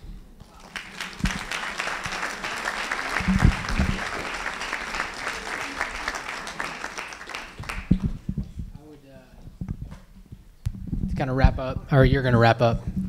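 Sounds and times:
audience applauding: 0.4s - 8.2s.

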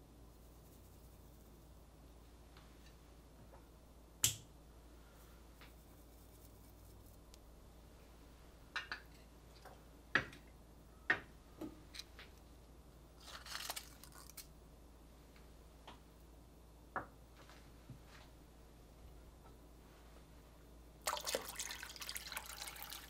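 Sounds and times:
dry leaves rustling: 13.2s - 14.5s.

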